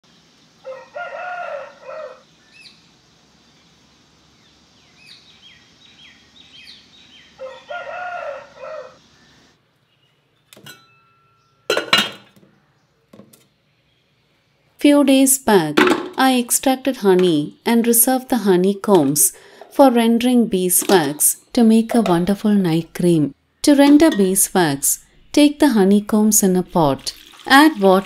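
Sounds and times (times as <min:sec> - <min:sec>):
rooster crowing: 0:00.6 - 0:02.3, 0:07.4 - 0:09.2
small birds chirping: 0:01.9 - 0:10.5
pot lid clinking and clattering: 0:10.6 - 0:11.1, 0:11.7 - 0:12.4.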